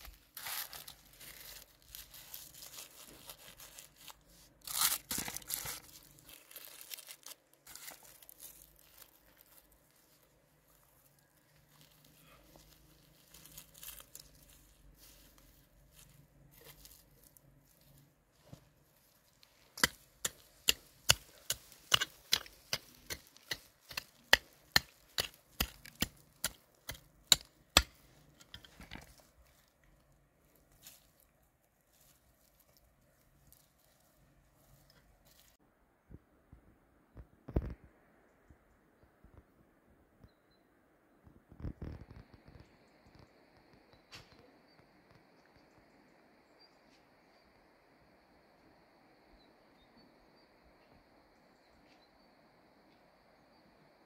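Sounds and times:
rustling in soil: 0.0s - 35.6s
fingers clicking and tapping soil: 19.7s - 29.2s.

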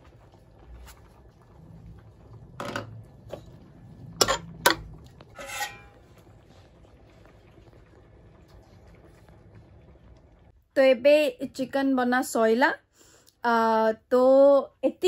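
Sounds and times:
metal spoon clinking on pot: 5.4s - 6.0s.

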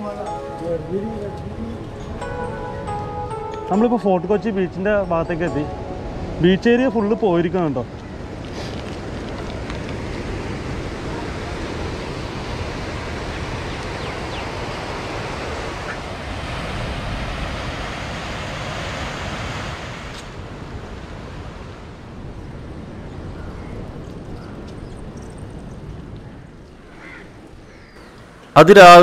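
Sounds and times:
sea surf breaking on shore: 4.1s - 25.1s
wind on microphone: 7.8s - 28.3s.

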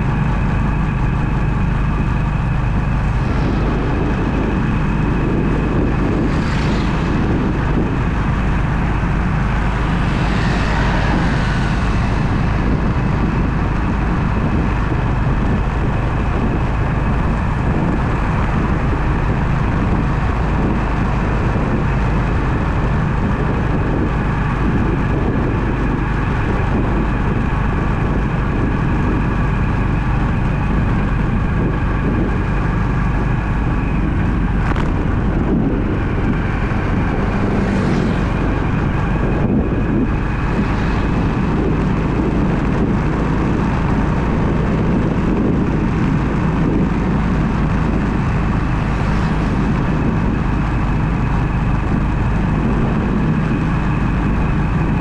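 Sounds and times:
car engine and road noise: 0.0s - 55.0s.

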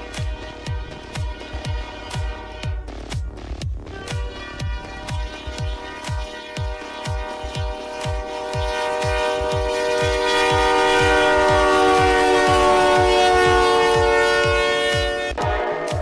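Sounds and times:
electronic music beat: 0.0s - 16.0s
locomotive air horn blast: 0.0s - 16.0s.

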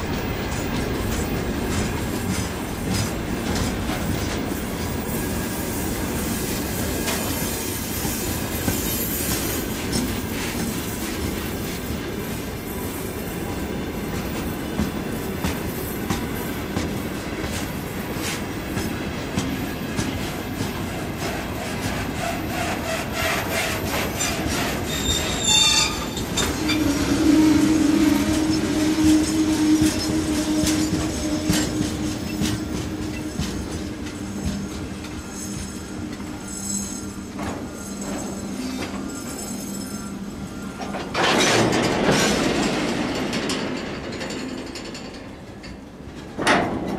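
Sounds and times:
train wheels clattering over joints: 0.0s - 12.4s, 13.4s - 39.6s, 40.8s - 46.9s
sharp high screech: 23.2s - 27.0s.

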